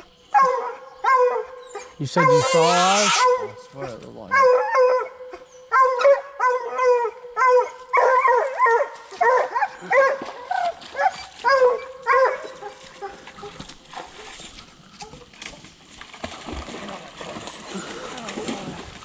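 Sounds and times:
dog barking: 0.3s - 1.6s, 2.2s - 3.6s, 4.3s - 13.2s.

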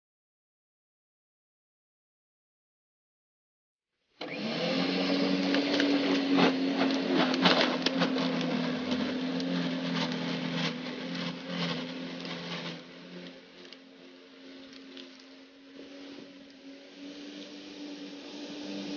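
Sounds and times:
lawn scarifier motor humming: 4.2s - 18.9s.

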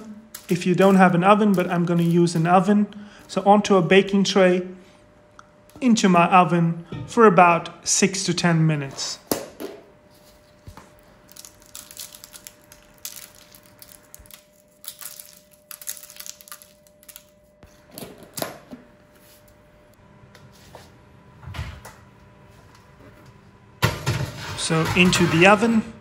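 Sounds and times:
salt crystals crackling on fruit: 11.2s - 17.4s.

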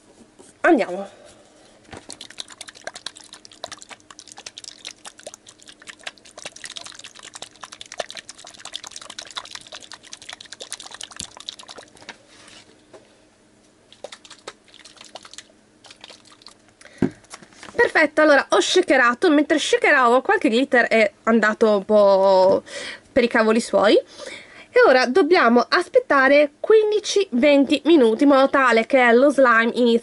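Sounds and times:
plastic container shaken: 1.9s - 12.1s, 13.9s - 16.6s
slime sloshing: 1.9s - 12.6s, 13.9s - 16.6s.

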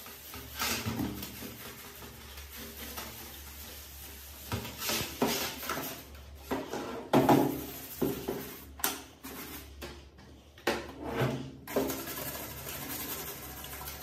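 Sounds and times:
small brush scrubbing: 0.0s - 6.8s, 11.7s - 14.0s.

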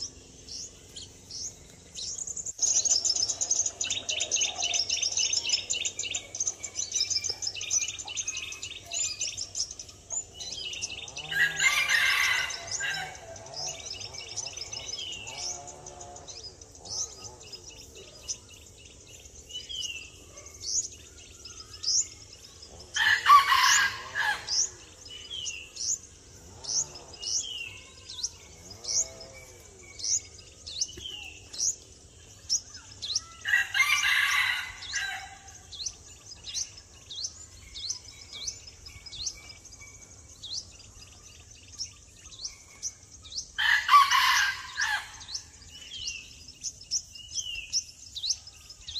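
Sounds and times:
loud long bird calls: 0.0s - 48.9s
small bird chirping: 0.0s - 48.9s.

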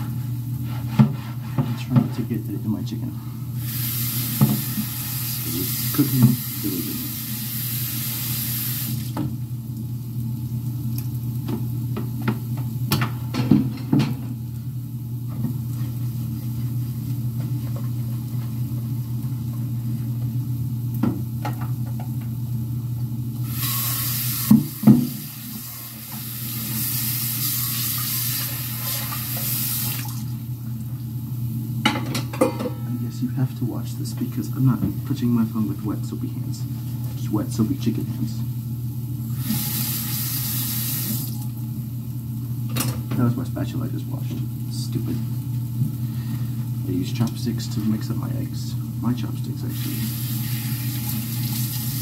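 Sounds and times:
steady low hum: 0.0s - 8.2s, 9.0s - 27.5s, 30.1s - 39.5s, 41.3s - 50.5s
kitchen tap running: 3.5s - 14.6s, 23.3s - 31.1s, 39.2s - 43.4s, 44.1s - 52.0s
dishes and utensils clinking: 31.9s - 33.0s.

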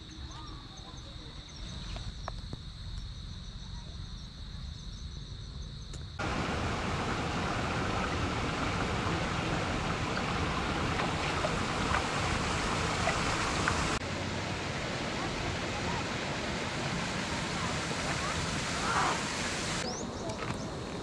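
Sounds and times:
low wind rumble: 6.2s - 21.0s
water flowing over rocks: 6.2s - 21.0s.

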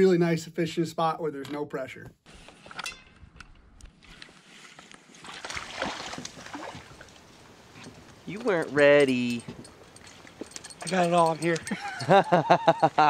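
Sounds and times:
fish splashing in water: 5.2s - 7.2s.

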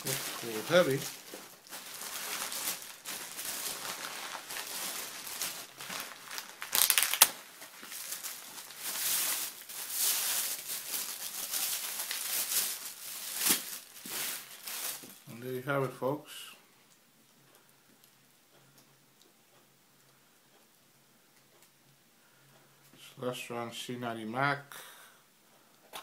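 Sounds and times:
plastic and bubble wrap crinkling: 0.0s - 15.9s.

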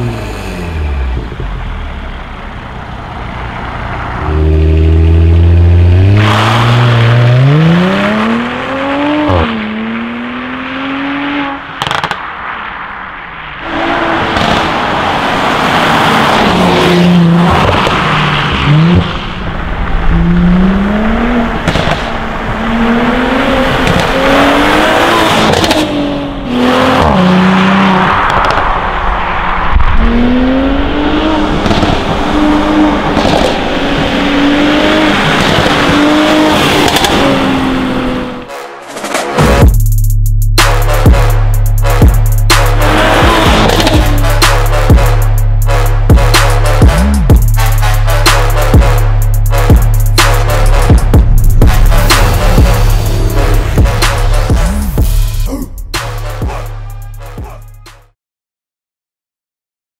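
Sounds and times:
car engine accelerating hard: 0.0s - 12.8s, 13.6s - 38.5s, 40.6s - 57.4s
exhaust crackles: 40.6s - 58.0s.

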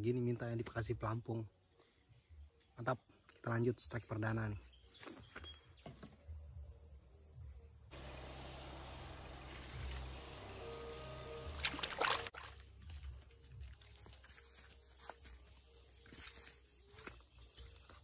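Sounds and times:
high-pitched insect buzzing: 7.9s - 15.1s.

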